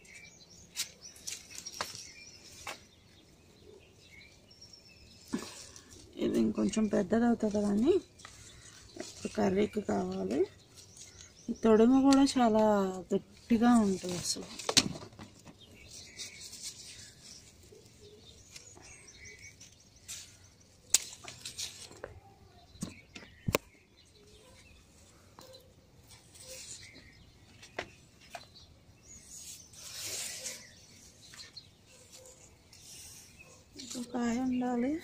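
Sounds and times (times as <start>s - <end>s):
leaves rustling: 0.0s - 35.0s
garden scissors snipping stalks: 5.1s - 13.1s, 18.4s - 22.1s.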